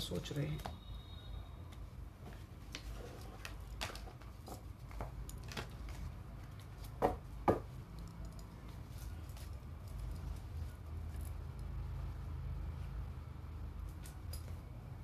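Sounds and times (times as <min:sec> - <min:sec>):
cards rustling and clicking: 0:02.3 - 0:11.3.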